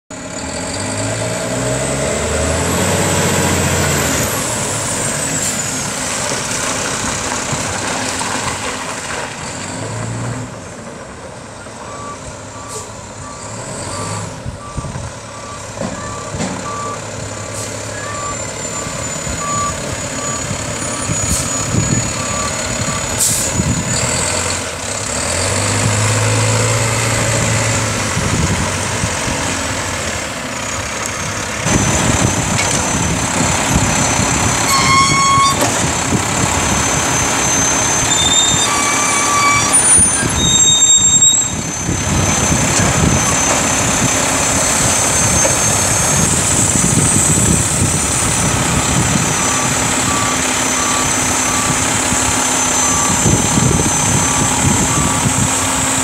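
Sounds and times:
diesel truck engines running: 0.1s - 56.0s
reversing alarm beeping: 11.8s - 23.8s, 33.8s - 35.6s, 36.8s - 46.4s, 49.2s - 55.5s.

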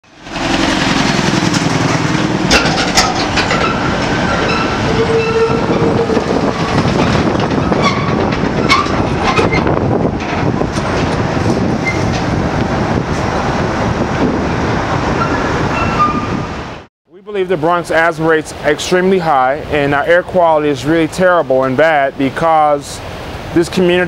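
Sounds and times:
trailers clattering: 0.0s - 22.9s
truck engines rumbling: 0.0s - 24.0s
tyre noise: 2.4s - 13.4s.

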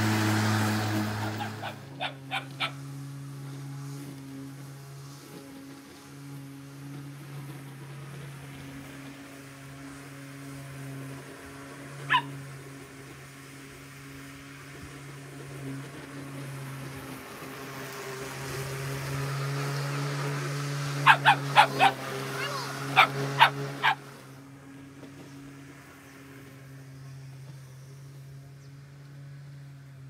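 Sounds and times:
electric lawn mower humming: 0.0s - 30.0s
dog barking: 1.4s - 2.8s, 12.1s - 12.3s, 21.0s - 24.0s.

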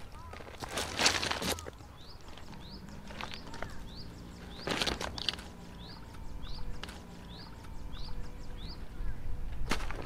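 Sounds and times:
shoes crunching on pebbles: 0.0s - 6.0s
bird rising chirp: 1.5s - 9.7s.

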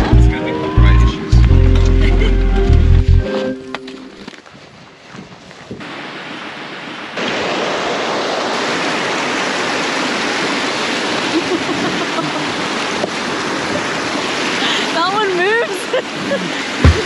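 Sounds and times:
stream rushing over rocks: 5.7s - 17.0s.

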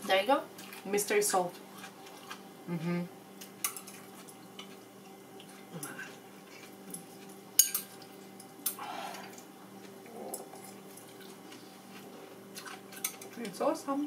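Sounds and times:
steady low hum: 0.0s - 14.0s
chopsticks clinking on bowls: 6.9s - 8.8s.

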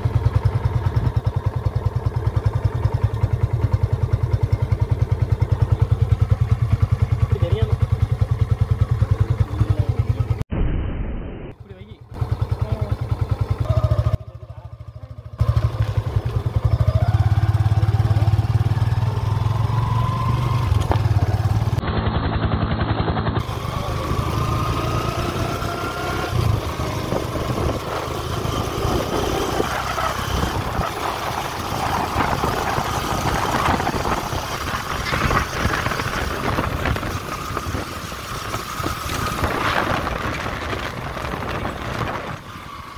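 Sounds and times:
motorcycle engine running: 0.0s - 10.4s, 11.6s - 42.9s
tyres on a dirt road: 0.0s - 10.5s, 11.5s - 42.9s
wind noise: 26.4s - 42.9s.

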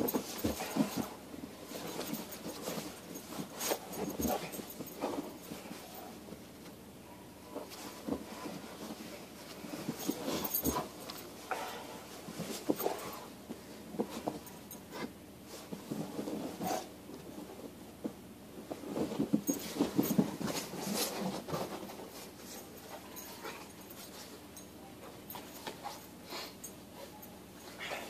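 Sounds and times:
scuffling: 0.0s - 6.6s
dog play sounds: 0.0s - 28.0s.

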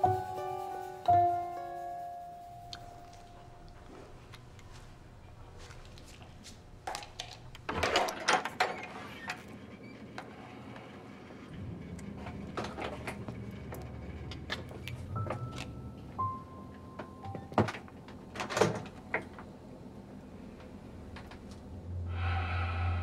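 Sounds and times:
knocking and clattering: 6.8s - 10.3s, 11.5s - 15.8s.

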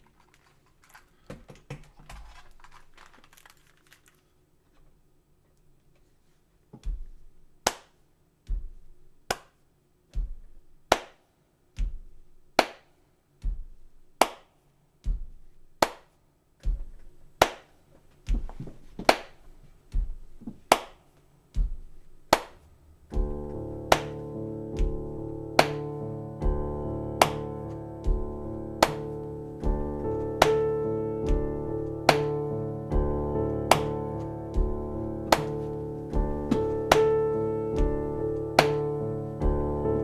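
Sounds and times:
hand percussion thump and slap beat: 6.7s - 39.8s
piano chords: 22.7s - 40.0s.

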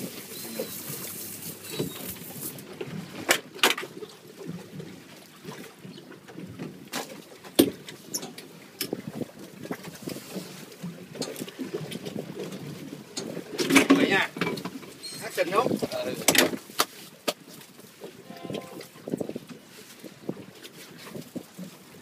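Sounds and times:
water lapping against boat hull: 0.0s - 22.0s
sharp knocks on boat: 6.6s - 7.9s, 16.2s - 17.4s.

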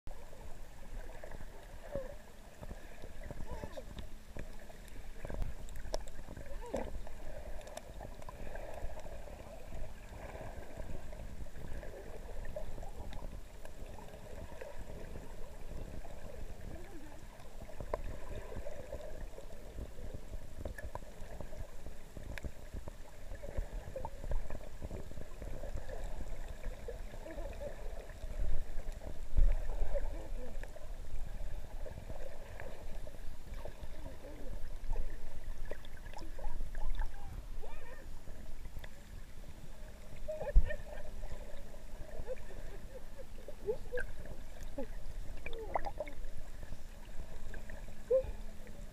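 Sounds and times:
muffled underwater water wash: 0.1s - 48.9s
sharp underwater clicks: 3.9s - 6.9s.

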